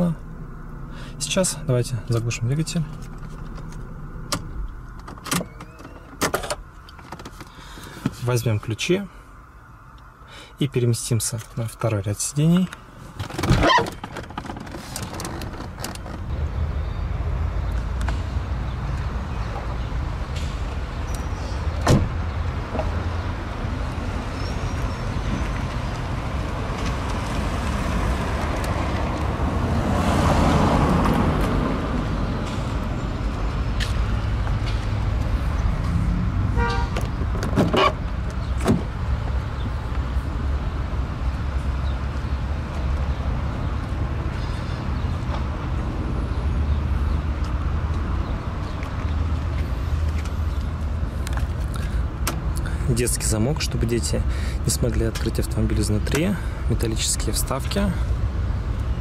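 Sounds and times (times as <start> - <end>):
outdoor traffic noise: 0.0 - 59.0
car door clicks and knocks: 21.8 - 22.1, 37.0 - 38.0, 38.6 - 38.9
vehicle passing: 22.2 - 37.3.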